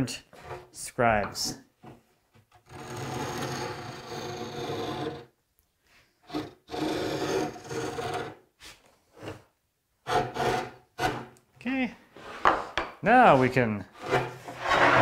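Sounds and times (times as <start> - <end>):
cutter scratching along wood: 2.6 - 5.3, 6.3 - 8.4, 10.0 - 11.3.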